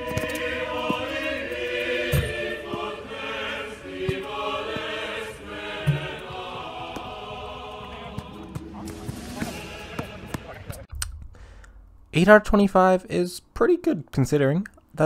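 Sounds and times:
choral music with chanting: 0:00.0 - 0:10.9.

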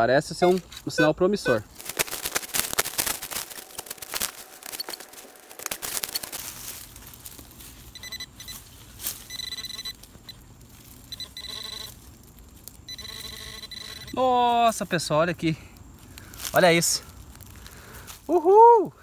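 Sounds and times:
warbling electronic beeps: 0:00.4 - 0:01.7, 0:03.0 - 0:06.4.

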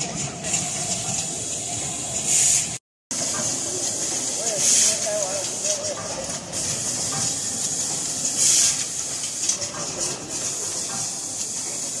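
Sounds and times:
pneumatic air hiss: 0:00.4 - 0:12.0
burst of air exhaust: 0:08.3 - 0:09.5.

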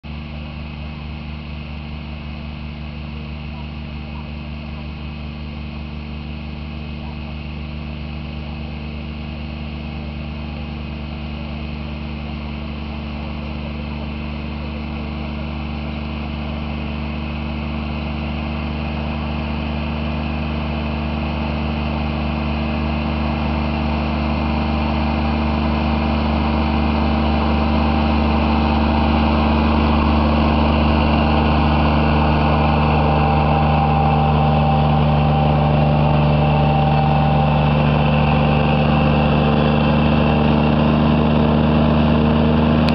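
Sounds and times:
mower engine cutting grass: 0:11.3 - 0:42.9.

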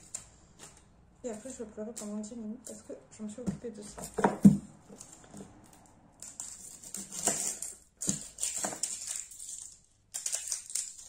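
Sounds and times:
onion skin crackling and rustling: 0:04.9 - 0:11.0.

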